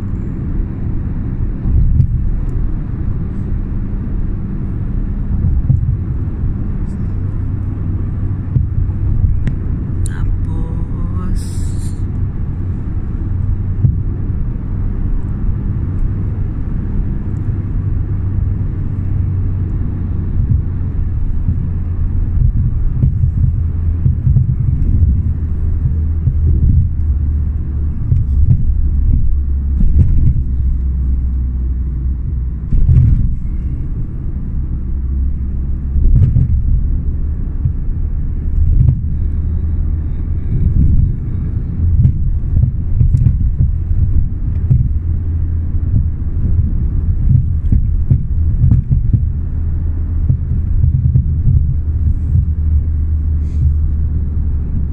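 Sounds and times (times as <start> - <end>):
car cabin road and engine rumble: 0.0 - 54.9.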